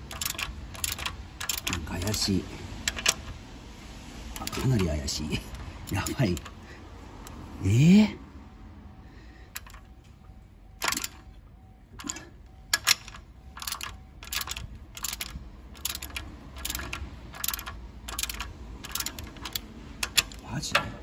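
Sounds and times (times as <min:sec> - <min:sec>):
socket ratchet clicking: 0:00.0 - 0:03.4, 0:04.4 - 0:06.6, 0:09.6 - 0:09.9, 0:10.8 - 0:11.2, 0:12.0 - 0:20.4.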